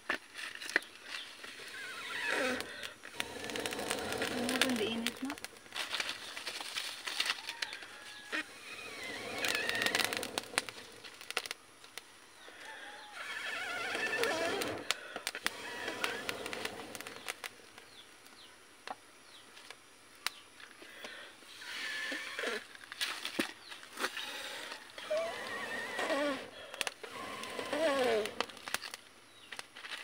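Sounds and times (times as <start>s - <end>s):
dry sticks clicking and cracking: 2.3s - 12.1s, 14.6s - 19.0s, 19.6s - 21.1s, 26.2s - 30.0s
bird-like calls: 7.5s - 10.9s, 12.4s - 14.9s, 15.5s - 18.0s, 24.2s - 28.6s.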